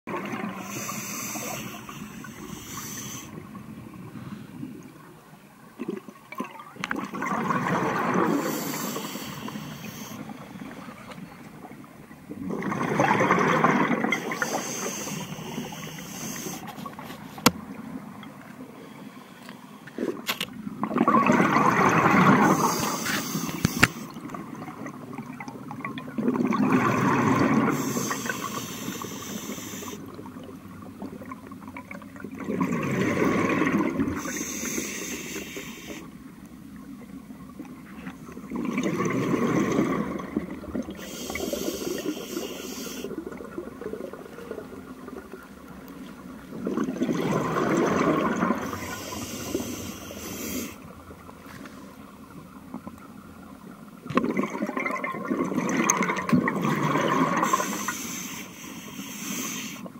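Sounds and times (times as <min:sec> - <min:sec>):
diver breathing through regulator: 0:00.6 - 0:03.4, 0:08.2 - 0:11.0, 0:14.1 - 0:17.5, 0:22.4 - 0:24.2, 0:27.6 - 0:30.0, 0:34.2 - 0:36.1, 0:41.0 - 0:43.2, 0:48.6 - 0:50.8, 0:57.3 - 0:59.9
steady hiss: 0:00.6 - 0:03.5, 0:08.3 - 0:11.0, 0:14.2 - 0:17.5, 0:22.5 - 0:24.2, 0:27.7 - 0:30.2, 0:34.2 - 0:36.2, 0:41.0 - 0:43.2, 0:48.6 - 0:51.0, 0:57.4 - 0:59.9.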